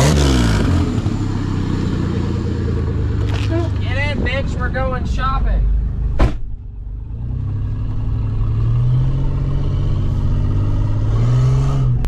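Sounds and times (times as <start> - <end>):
van engine accelerating: 0.0 - 12.0
sharp knock: 6.1 - 6.5.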